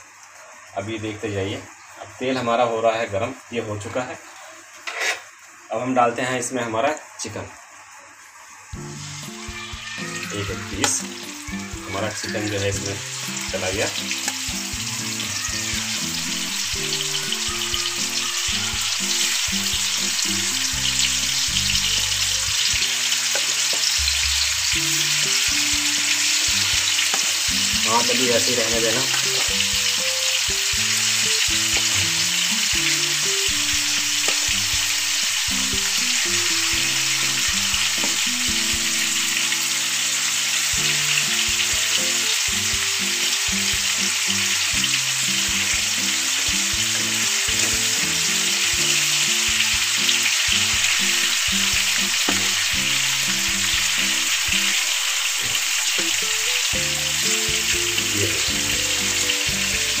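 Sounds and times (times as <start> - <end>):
chicken sizzling in oil: 0.0 - 60.0
spatula stirring in pan: 4.7 - 5.3.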